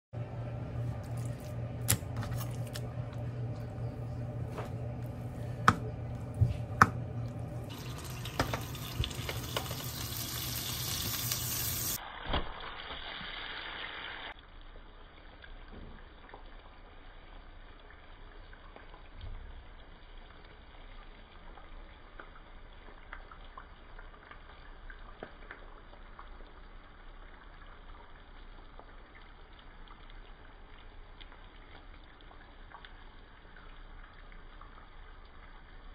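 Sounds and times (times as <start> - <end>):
steady hum: 0.2 - 9.7
onions sizzling in a frying pan: 7.7 - 23.0.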